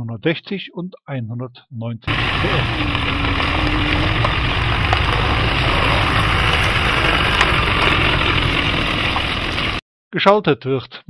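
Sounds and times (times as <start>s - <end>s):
diesel engine running: 2.1s - 9.8s.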